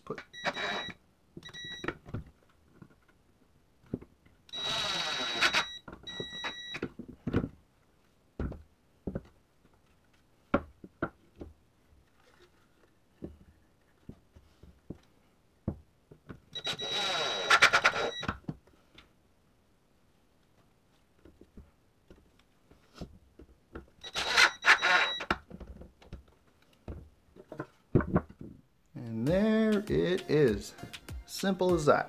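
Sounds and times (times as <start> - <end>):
cordless driver whirring: 4.6 - 5.7, 16.7 - 18.2.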